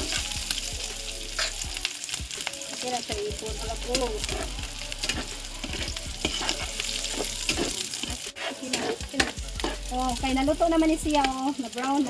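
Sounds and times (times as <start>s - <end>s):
food sizzling in hot oil: 0.0s - 12.0s
spatula scraping a pan: 1.3s - 1.6s, 4.2s - 9.9s.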